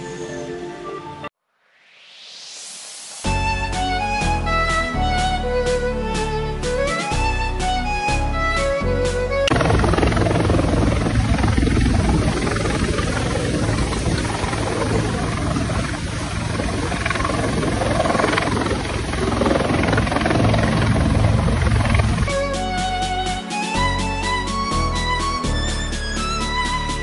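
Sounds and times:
helicopter hovering: 6.8s - 27.0s.

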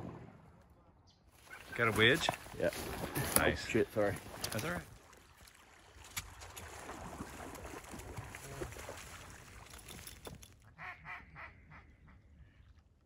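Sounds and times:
water sloshing and splashing: 1.4s - 10.6s
ducks quacking: 10.7s - 12.6s.

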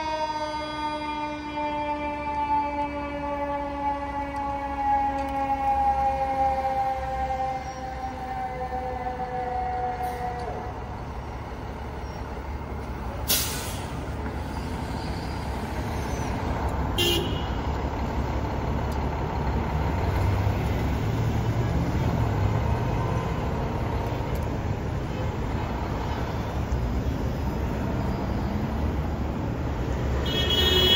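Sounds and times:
diesel engine running and revving: 3.9s - 30.2s
air brakes hissing: 13.2s - 16.4s.

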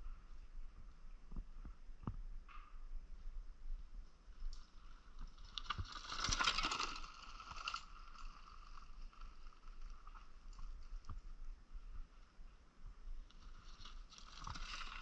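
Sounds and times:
bike rattling over stones: 4.6s - 11.3s, 13.3s - 15.0s.

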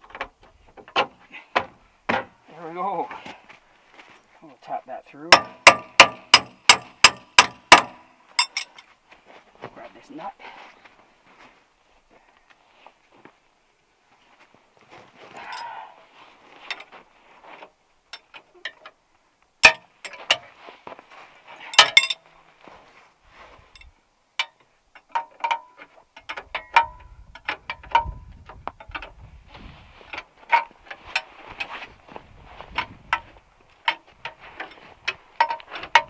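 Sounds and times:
sharp metal knocks: 0.1s - 2.4s, 5.3s - 8.8s, 19.6s - 20.4s, 21.7s - 22.2s, 24.4s - 29.2s, 35.4s - 36.0s
steel tools clinking on a bolt: 5.3s - 8.9s, 21.6s - 22.2s, 23.8s - 28.2s, 35.4s - 36.0s.

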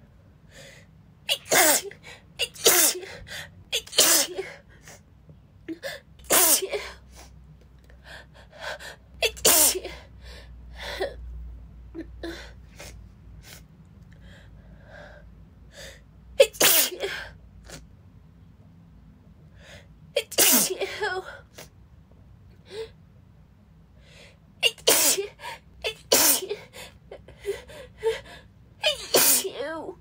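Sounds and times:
woman sneezing: 1.3s - 3.2s, 3.8s - 4.6s, 6.3s - 7.0s, 9.2s - 10.1s, 16.4s - 17.3s, 20.2s - 21.6s, 24.6s - 26.7s, 28.8s - 29.9s.

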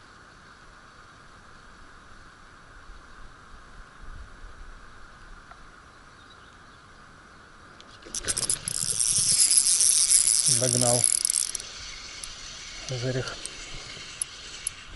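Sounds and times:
fishing reel ratcheting: 8.0s - 14.9s.

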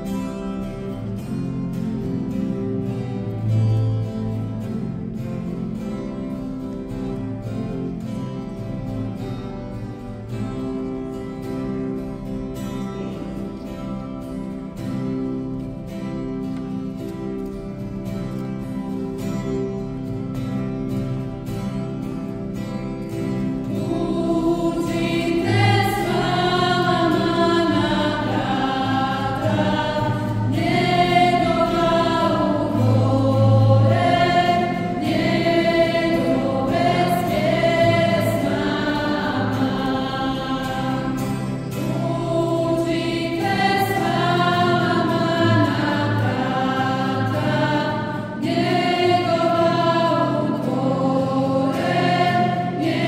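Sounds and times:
instrumental accompaniment: 0.1s - 53.0s
choir singing a hymn: 21.7s - 53.0s.

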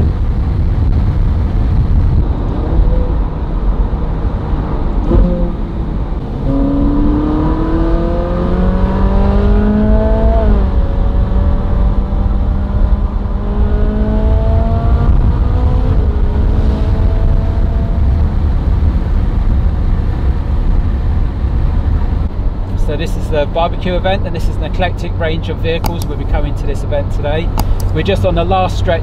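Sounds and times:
wind and road noise rumble: 0.0s - 29.0s
car engine revving through gears: 2.2s - 18.7s.

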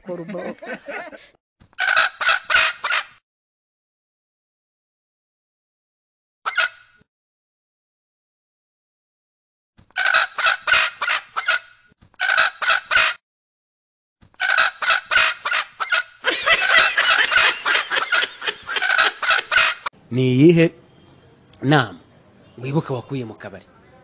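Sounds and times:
chicken clucking and squawking: 1.8s - 3.1s, 10.0s - 13.2s, 14.4s - 19.9s.

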